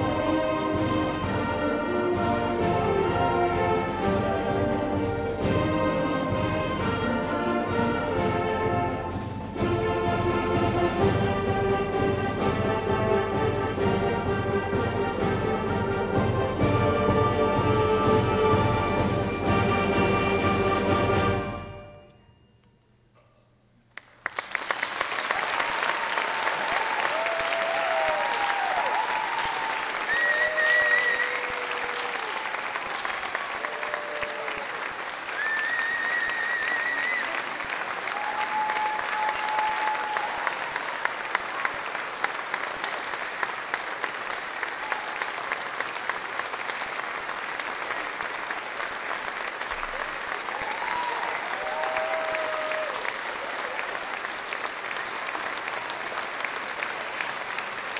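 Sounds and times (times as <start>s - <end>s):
audience applause: 24.0s - 57.9s
people cheering and whooping: 25.3s - 41.6s, 49.8s - 54.5s.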